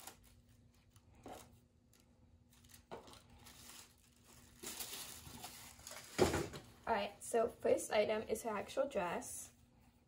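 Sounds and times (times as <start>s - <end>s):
tissue paper rustling: 0.0s - 6.2s.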